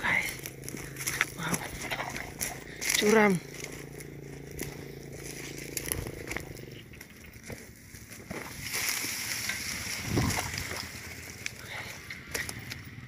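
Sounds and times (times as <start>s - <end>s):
footsteps crunching dry leaves: 0.0s - 12.9s
twigs snapping underfoot: 0.2s - 12.9s
brushing past plants: 8.0s - 12.0s.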